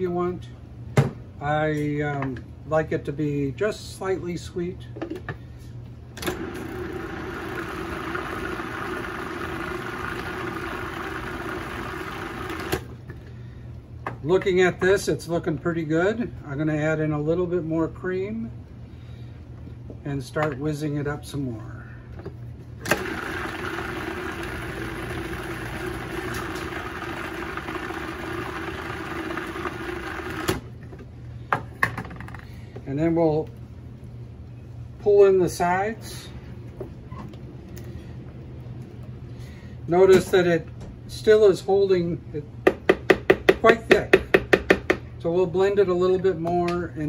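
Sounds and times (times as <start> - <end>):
food processor motor humming: 6.2 - 12.9, 22.8 - 30.7.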